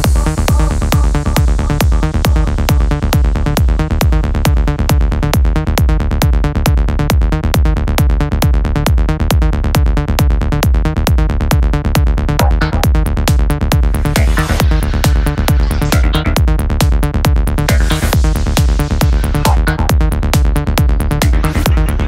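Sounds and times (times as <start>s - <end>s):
psytrance electronic music: 0.0s - 22.0s
rising synth sweep: 13.8s - 16.4s, 17.5s - 22.0s.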